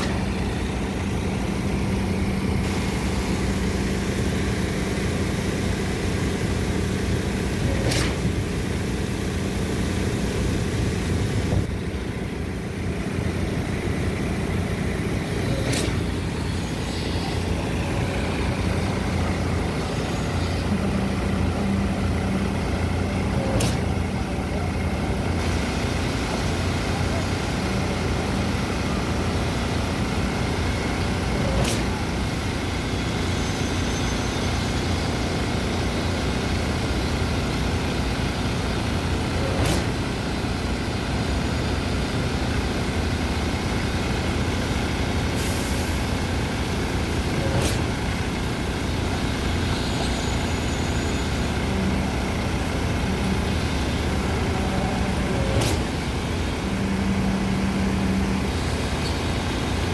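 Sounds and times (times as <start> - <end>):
concrete pump running: 0.0 - 59.9.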